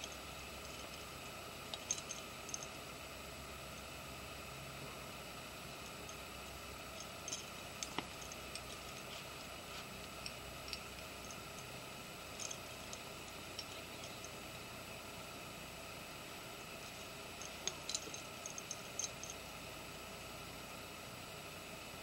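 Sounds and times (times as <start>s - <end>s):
metallic clicks of climbing hardware: 0.0s - 2.9s, 5.8s - 14.4s, 16.8s - 19.5s
steady low hiss: 0.0s - 22.0s.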